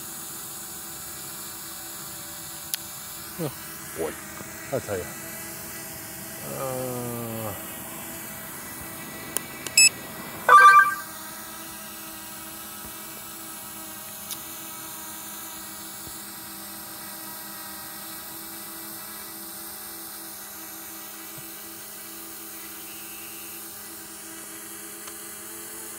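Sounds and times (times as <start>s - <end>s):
short electronic tones: 10.5s - 11.1s.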